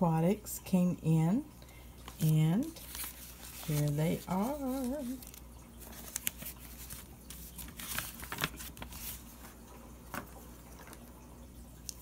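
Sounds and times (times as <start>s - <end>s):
paper rustling: 2.0s - 11.0s.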